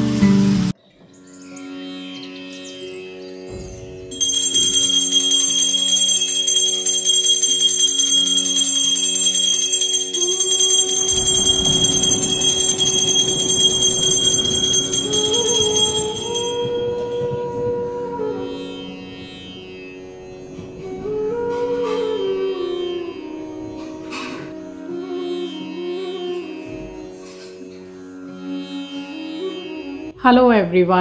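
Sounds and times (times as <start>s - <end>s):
rising melody: 3.1s - 27.0s
bell-like ringing music: 3.5s - 18.0s.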